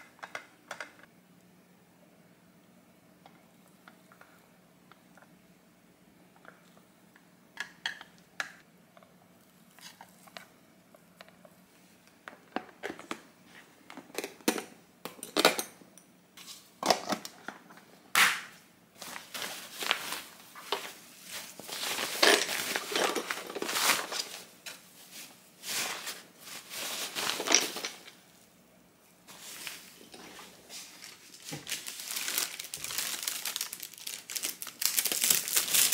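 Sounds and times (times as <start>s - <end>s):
cloth bag rustling: 19.0s - 28.1s, 29.3s - 35.9s.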